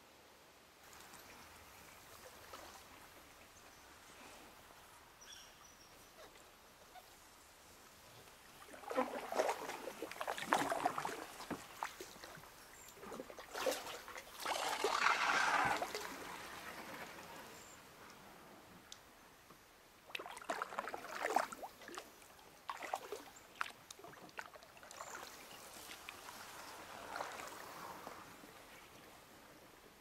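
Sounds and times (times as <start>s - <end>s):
paddle splashing and dripping: 8.3s - 17.7s, 20.0s - 29.0s.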